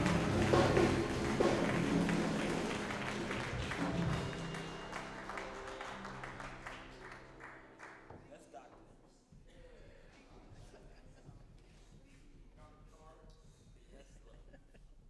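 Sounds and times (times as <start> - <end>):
congregation applauding: 0.0 - 8.6.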